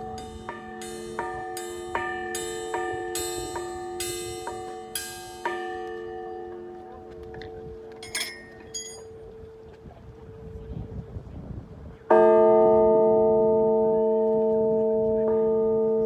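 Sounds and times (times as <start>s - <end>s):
bell struck with a mallet: 0.0s - 6.0s, 8.0s - 9.1s.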